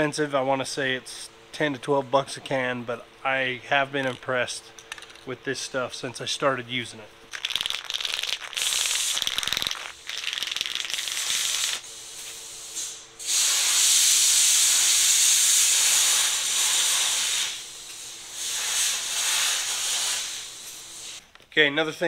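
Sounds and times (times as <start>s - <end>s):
spray can rattling: 7.3s - 11.8s
spray paint hissing: 7.3s - 21.2s.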